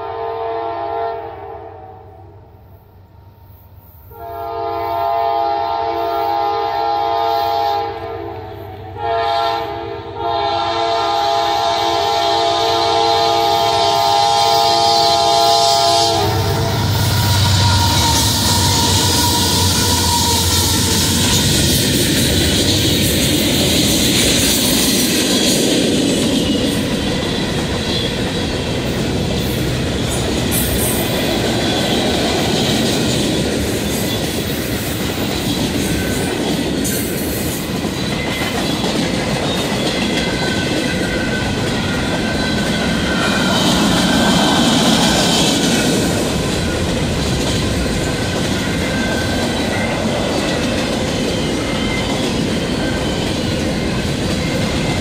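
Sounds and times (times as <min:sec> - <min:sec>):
diesel locomotive engine: 0:02.0 - 0:55.0
freight train wheels rumbling: 0:02.4 - 0:55.0
clickety-clack over rail joints: 0:17.2 - 0:55.0.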